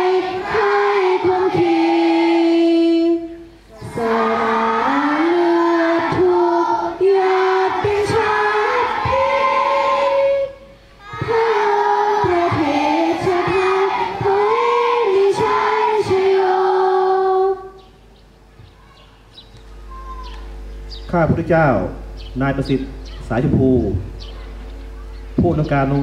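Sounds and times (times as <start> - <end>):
children and adults singing together: 0.0 - 18.0.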